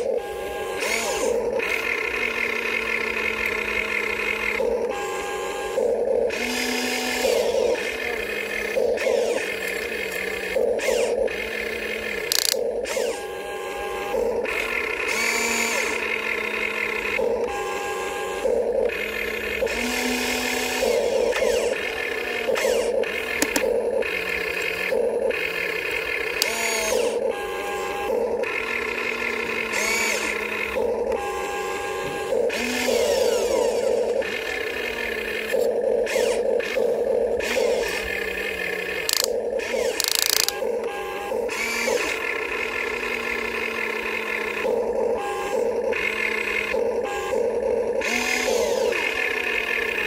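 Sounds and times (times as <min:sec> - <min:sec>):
electric motors and pump whining: 0:00.0 - 0:50.0
clicks: 0:12.2 - 0:13.0, 0:23.4 - 0:23.8, 0:39.0 - 0:40.6.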